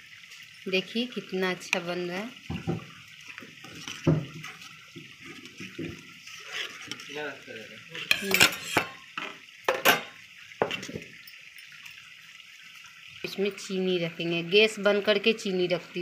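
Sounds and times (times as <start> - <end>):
spoon stirring in metal saucepan: 3.2 - 7.1, 7.9 - 11.8
spoon knocking on pan: 8.1 - 11.1.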